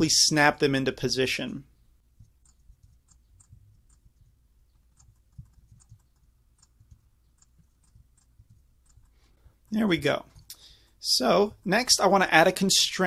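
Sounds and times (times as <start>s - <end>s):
keyboard and mouse clicks: 2.2s - 9.2s.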